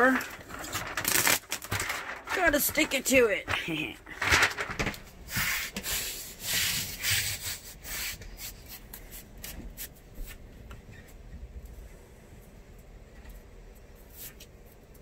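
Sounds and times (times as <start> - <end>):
hands rubbing flooring sheet: 5.3 - 10.4.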